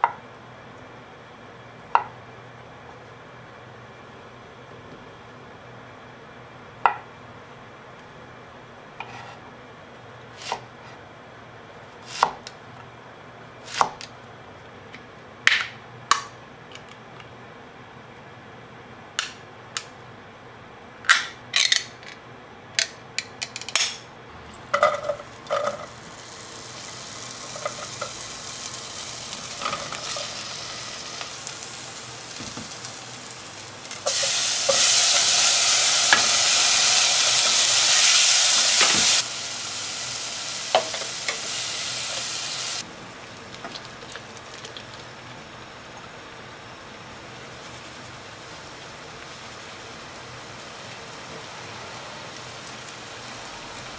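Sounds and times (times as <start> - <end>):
okra sizzling in oil: 24.9 - 42.8.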